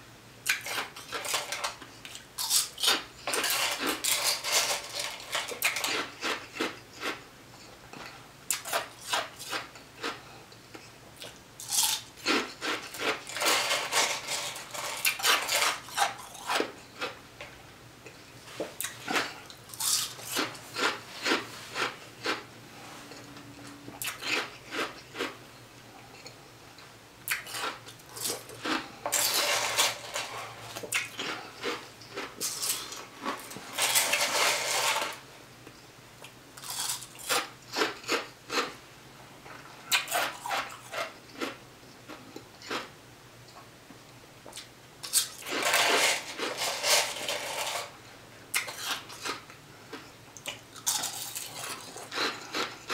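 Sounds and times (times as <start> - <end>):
ice being crunched and chewed: 0.5 - 7.2, 8.5 - 17.2, 18.8 - 22.4, 24.0 - 25.4, 27.3 - 35.0, 36.6 - 38.7, 48.5 - 52.9
plastic spoon scraping ice: 3.3 - 6.7, 11.9 - 16.7, 27.5 - 35.2, 45.3 - 47.9.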